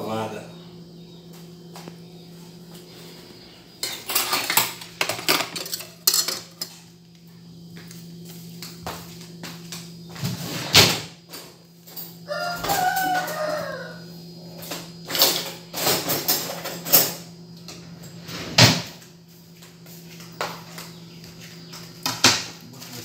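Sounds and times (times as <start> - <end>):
steady low hum: 0.0 - 23.0
rooster crowing: 12.1 - 14.6.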